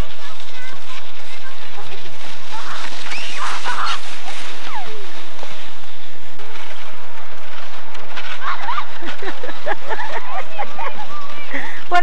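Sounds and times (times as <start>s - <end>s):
people crying out: 2.5s - 5.1s, 8.3s - 9.2s.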